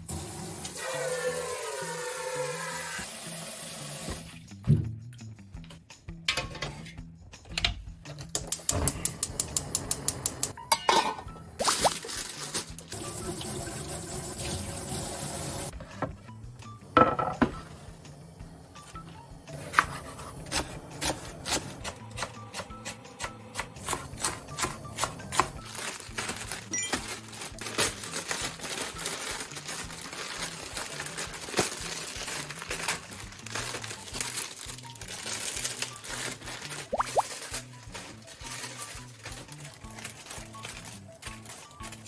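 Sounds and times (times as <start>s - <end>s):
soft background music: 0.1s - 42.0s
plastic packets crinkling: 11.6s - 12.9s, 25.6s - 42.0s.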